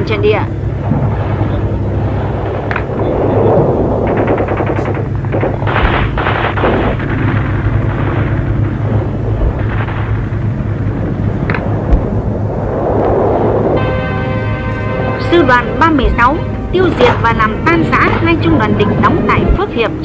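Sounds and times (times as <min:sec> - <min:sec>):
low rumble: 0:00.0 - 0:20.0
heavy blasts: 0:00.2 - 0:20.0
machine-gun burst: 0:04.0 - 0:08.8.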